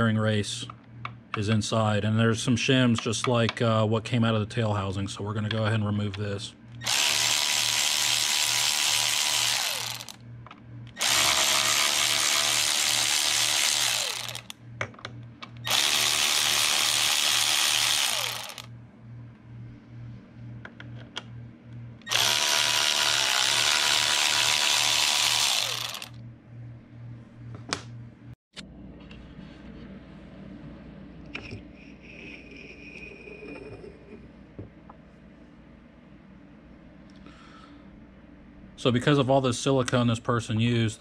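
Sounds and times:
power drill running: 0:06.8 - 0:10.2, 0:11.0 - 0:14.5, 0:15.6 - 0:18.7, 0:22.0 - 0:26.2.

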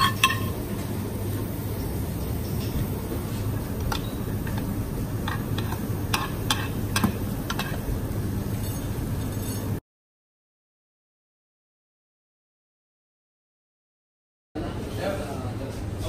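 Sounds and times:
kitchen hum: 0:00.0 - 0:09.8
metal spoon tapping china bowl: 0:05.3 - 0:07.8.

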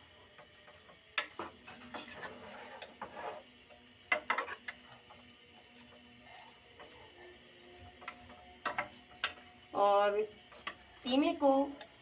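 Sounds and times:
metal spoon scraping a pot: 0:01.7 - 0:05.0.

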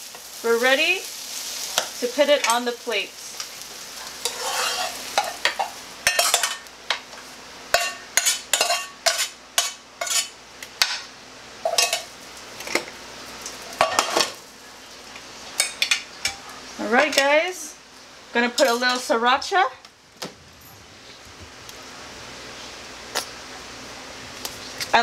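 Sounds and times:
utensil scraping frying pan: 0:03.7 - 0:06.7, 0:07.7 - 0:11.0.

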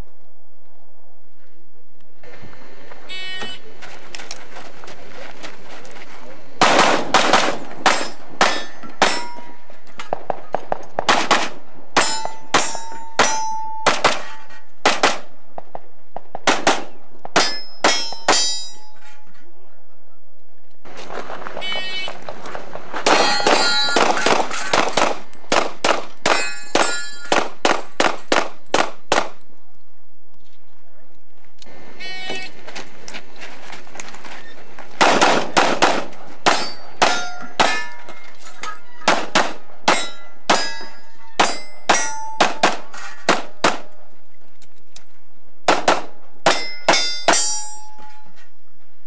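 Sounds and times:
steel targets clanging: 0:07.8 - 0:10.2, 0:12.0 - 0:14.7, 0:17.3 - 0:19.4, 0:23.0 - 0:25.1, 0:26.1 - 0:27.6, 0:36.4 - 0:43.4, 0:46.4 - 0:48.5.

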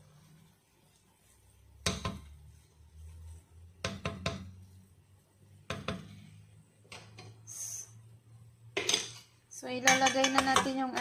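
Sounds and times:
wooden spoon knocking on pot: 0:01.8 - 0:02.3, 0:03.8 - 0:04.6, 0:05.6 - 0:06.2, 0:09.8 - 0:11.0.

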